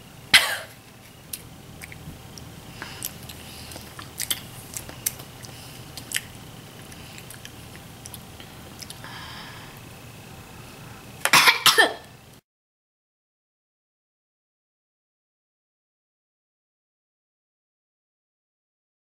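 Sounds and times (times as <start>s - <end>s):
wet chewing and squishing: 1.3s - 9.0s.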